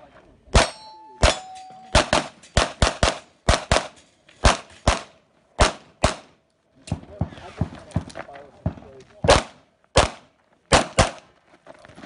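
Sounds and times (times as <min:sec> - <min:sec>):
rapid pistol shots: 0:00.5 - 0:06.4, 0:09.3 - 0:11.2
short metallic ring: 0:00.6 - 0:02.6.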